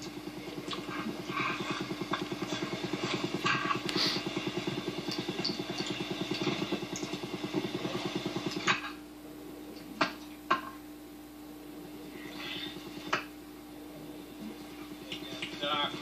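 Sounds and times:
small motor pulsing: 0:00.0 - 0:08.8
faint steady hum: 0:00.0 - 0:16.0.

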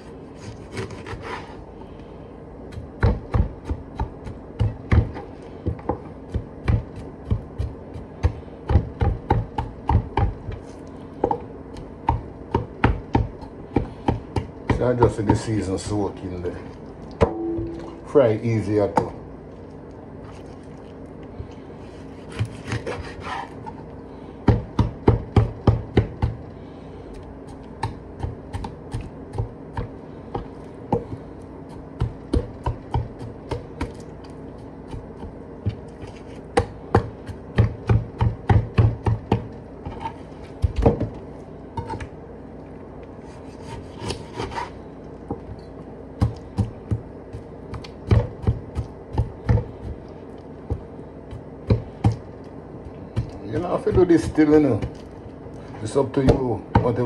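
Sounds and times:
knife scraping board: 0:00.0 - 0:01.6, 0:21.8 - 0:23.8, 0:39.8 - 0:40.4, 0:43.2 - 0:44.8
knife chopping on wooden board: 0:00.4 - 0:01.5, 0:02.7 - 0:15.5, 0:22.2 - 0:23.5, 0:24.4 - 0:26.4, 0:27.5 - 0:34.1, 0:34.8 - 0:41.2, 0:46.2 - 0:50.0, 0:50.7 - 0:52.2, 0:53.1 - 0:55.0.

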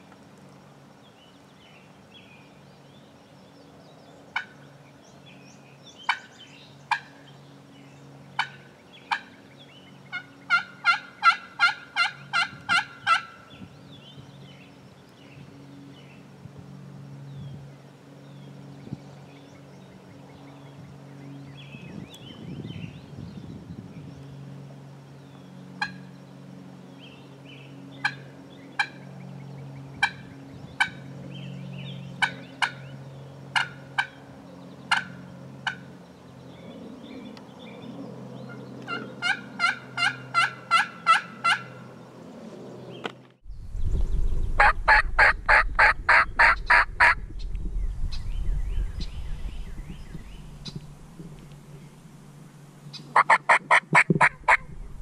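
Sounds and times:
turkey yelping and clucking: 0:08.4 - 0:09.3, 0:10.1 - 0:13.4, 0:33.6 - 0:34.1, 0:34.9 - 0:35.8, 0:38.9 - 0:41.8, 0:44.6 - 0:47.2, 0:53.1 - 0:54.7
wind noise: 0:12.3 - 0:14.4, 0:17.3 - 0:17.8, 0:18.7 - 0:19.2, 0:21.6 - 0:24.3, 0:29.9 - 0:31.0, 0:43.4 - 0:52.4, 0:53.2 - 0:55.0.

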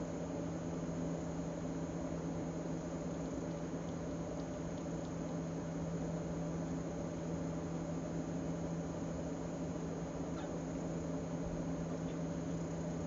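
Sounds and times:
steady low hum: 0:00.0 - 0:13.0
faint ticks: 0:03.4 - 0:05.6.

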